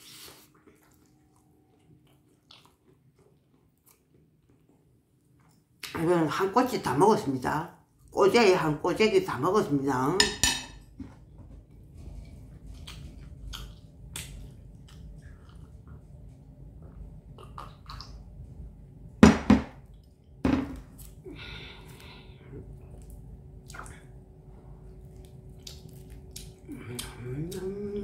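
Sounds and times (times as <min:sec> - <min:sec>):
food being chewed: 0:00.0 - 0:05.9, 0:12.0 - 0:18.2, 0:22.7 - 0:24.2, 0:24.8 - 0:27.8.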